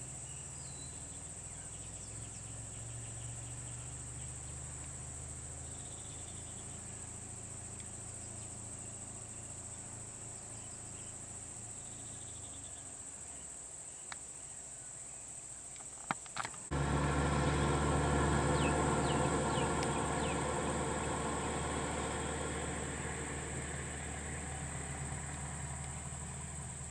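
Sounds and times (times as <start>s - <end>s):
engine idling: 16.7s - 26.9s
bird chirps: 18.3s - 22.6s.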